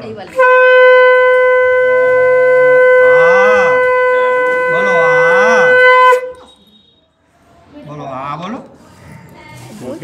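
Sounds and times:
conch shell blown: 0.3s - 7.1s.

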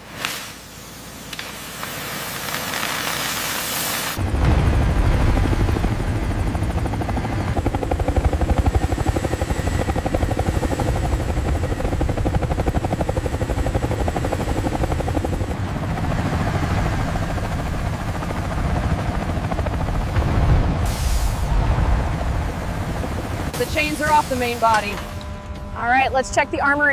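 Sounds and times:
helicopter rotor chop: 1.2s - 26.9s
thin high whine: 23.6s - 26.9s.

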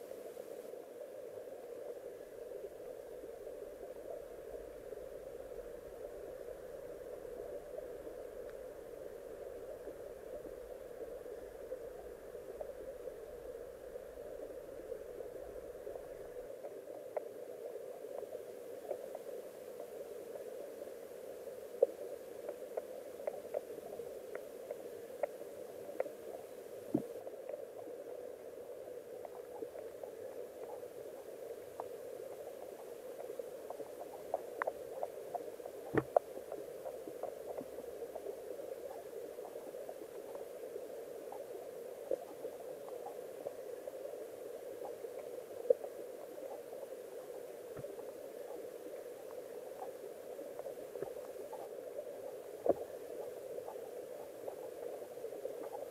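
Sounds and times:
muffled underwater river rush: 0.0s - 55.9s.

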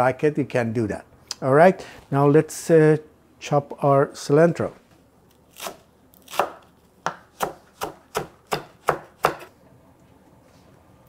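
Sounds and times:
knife chopping on wooden board: 5.6s - 9.5s.

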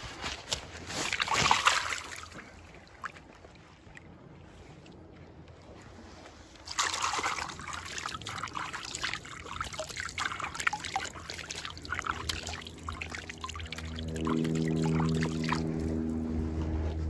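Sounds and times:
hands splashing in water: 0.9s - 2.5s, 6.7s - 15.9s
water trickling and dripping: 6.7s - 16.0s.

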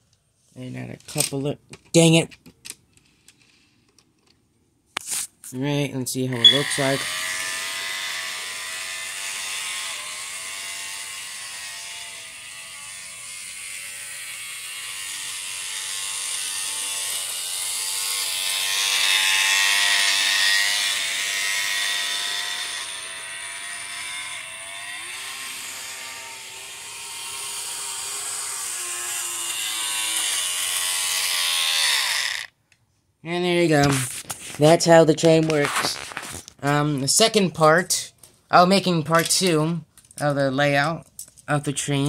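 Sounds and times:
model train motor whine: 6.4s - 32.6s.

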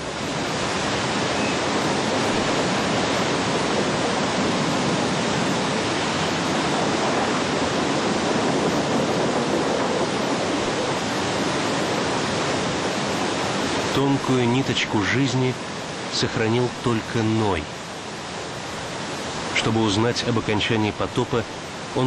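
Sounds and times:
floodwater roaring: 0.0s - 22.0s.

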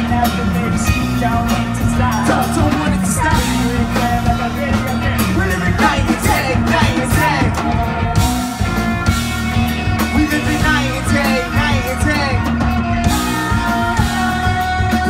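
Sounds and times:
bass guitar: 0.0s - 15.0s
drums: 0.0s - 15.0s
electric guitar: 0.0s - 15.0s
keyboard: 0.0s - 15.0s
person singing: 0.0s - 15.0s.

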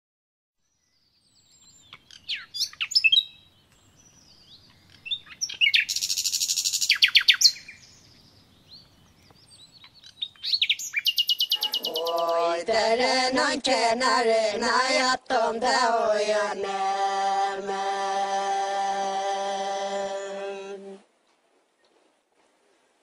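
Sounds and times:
small birds chirping: 0.6s - 12.5s
bird rattling trill: 11.1s - 12.2s.

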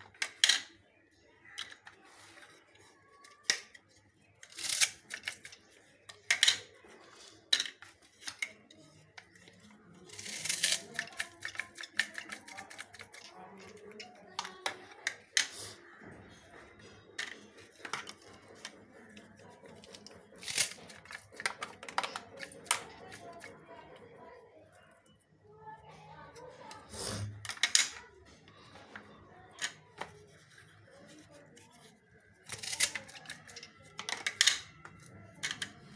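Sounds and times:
faint background voices: 0.0s - 35.9s
clicks and knocks on a counter: 32.6s - 35.9s.

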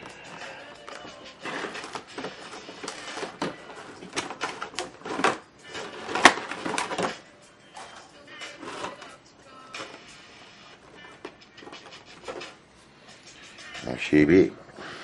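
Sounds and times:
packaging crinkling and rustling: 0.8s - 7.2s.

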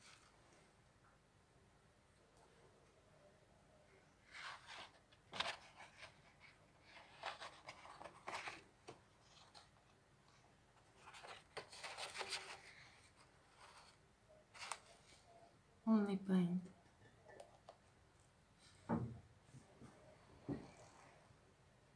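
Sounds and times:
paper pages rustling: 4.2s - 15.2s.

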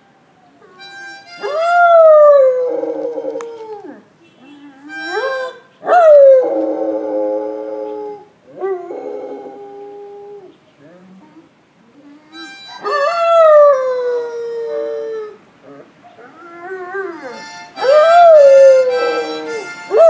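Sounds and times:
harmonica chords: 0.8s - 2.0s, 4.9s - 5.6s, 12.3s - 13.4s, 17.1s - 20.0s
dog howling: 1.4s - 4.0s, 12.6s - 20.0s.

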